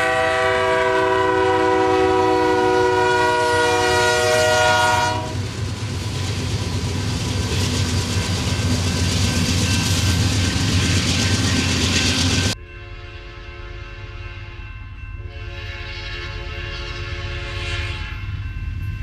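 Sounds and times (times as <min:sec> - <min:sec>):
faint distant train horn: 0:00.0 - 0:06.4, 0:11.5 - 0:19.0
diesel locomotives passing: 0:00.0 - 0:19.0
wheels pounding rails: 0:03.6 - 0:12.6.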